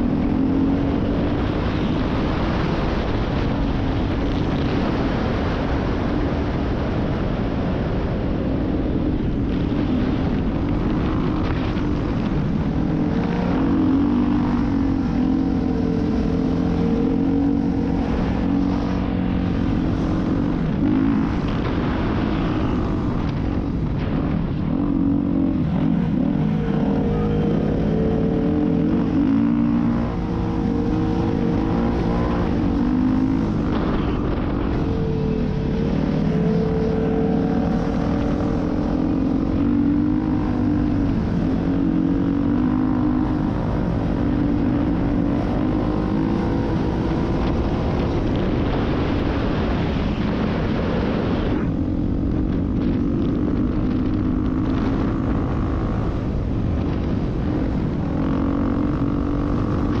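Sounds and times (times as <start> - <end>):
heavy wind rush: 0.0 - 60.0
off-road engine running: 0.0 - 60.0.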